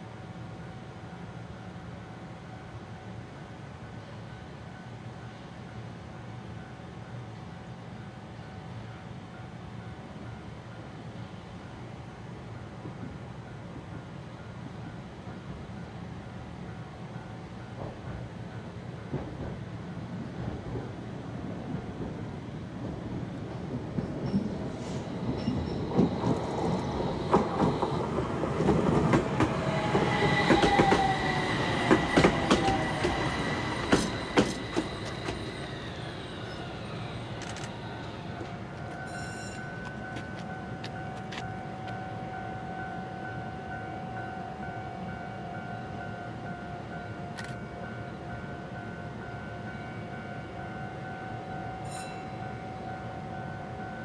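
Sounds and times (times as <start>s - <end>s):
tram wheels clicking over rails: 20.4s - 42.0s
brake squeal: 30.1s - 40.4s.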